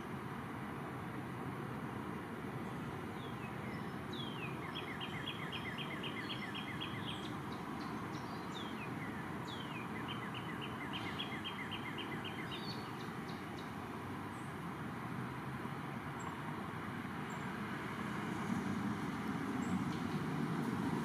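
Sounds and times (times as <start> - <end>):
steady background hiss: 0.0 - 21.0
bird singing: 2.6 - 14.5.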